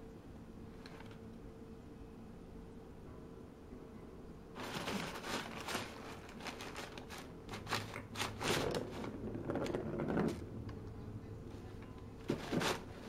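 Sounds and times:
paper crinkling and rustling: 4.6 - 10.4, 12.2 - 13.0.

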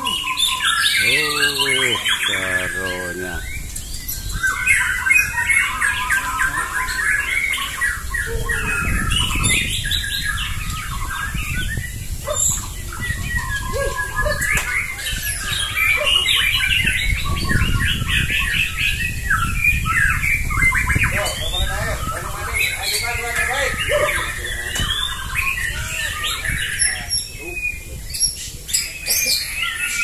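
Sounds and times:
birds singing in chorus: 0.0 - 30.0.

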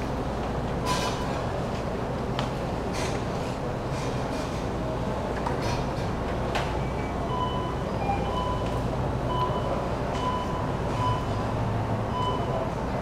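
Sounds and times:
short electronic beeps: 9.3 - 11.4, 12.1 - 12.6.

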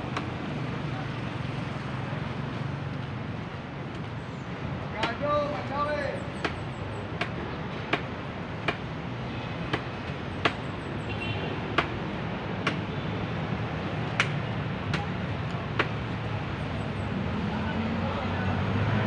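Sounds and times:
city traffic hum: 0.0 - 19.0.

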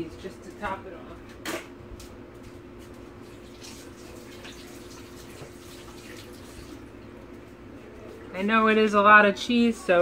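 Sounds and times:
water running from a tap: 3.2 - 7.0.

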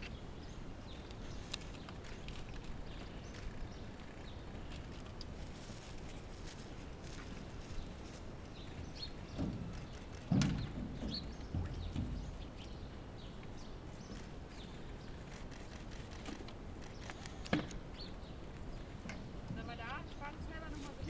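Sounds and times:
light knocks: 8.8 - 12.6.

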